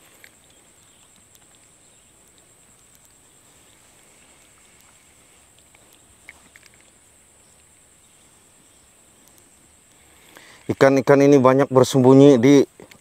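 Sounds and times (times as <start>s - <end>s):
insects droning: 0.0s - 13.0s.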